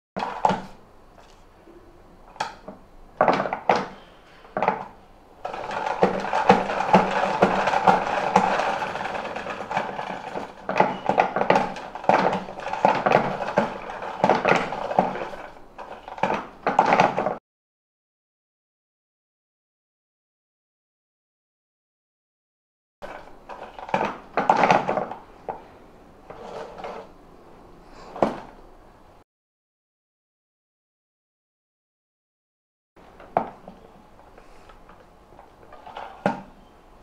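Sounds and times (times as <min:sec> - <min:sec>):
spin mop clattering whirr: 0:00.2 - 0:01.4, 0:04.6 - 0:17.4, 0:23.0 - 0:27.2, 0:33.0 - 0:36.6.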